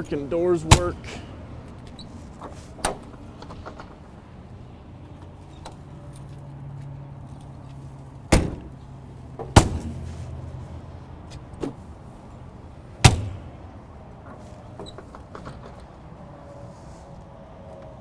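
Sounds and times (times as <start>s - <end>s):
metal doors banging: 8.3s - 10.0s, 13.0s - 15.9s.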